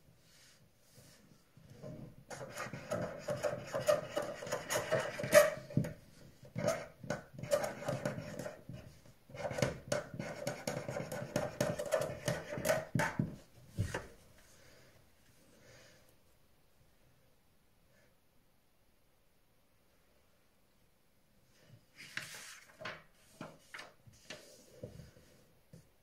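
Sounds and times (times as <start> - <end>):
pen scratching on paper: 2.3 - 5.8, 6.6 - 8.6, 9.3 - 12.9.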